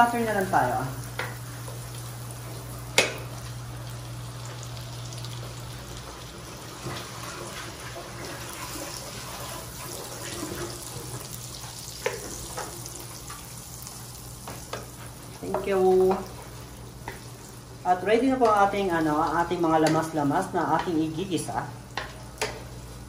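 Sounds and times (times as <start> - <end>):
butter sizzling in frying pan: 0.0 - 17.8.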